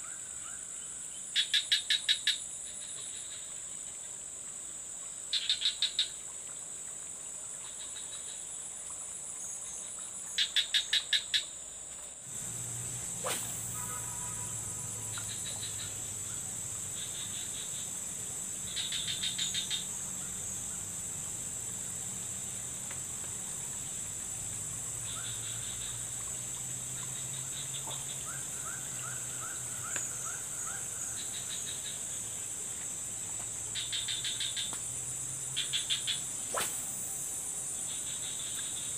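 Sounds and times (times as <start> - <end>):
insects buzzing: 0.0 - 38.9
rapid insect chirps: 0.0 - 38.9
faint low hum: 12.3 - 29.7.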